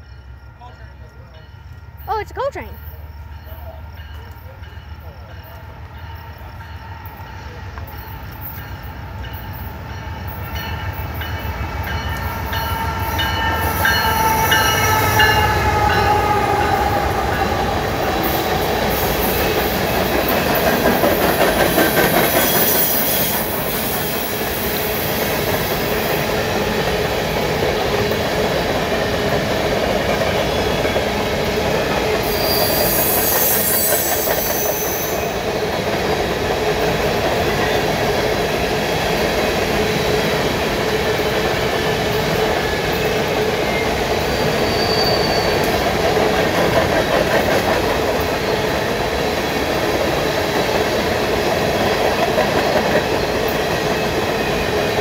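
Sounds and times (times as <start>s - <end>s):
diesel locomotive engine rumbling: 0.0s - 55.0s
train wheels on rails: 0.0s - 55.0s
high-pitched wheel squeal: 32.2s - 35.4s, 44.2s - 45.8s.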